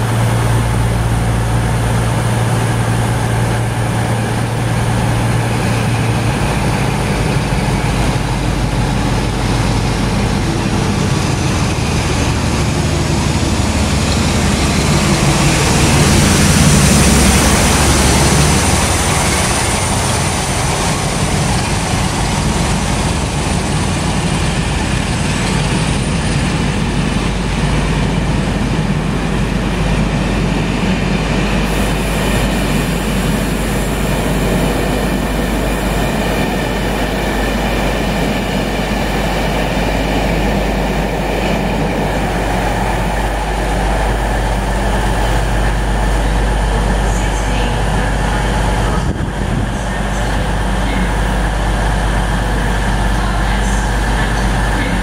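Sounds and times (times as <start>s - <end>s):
diesel locomotive engine: 0.0s - 55.0s
train coaches rolling on rails: 0.0s - 55.0s.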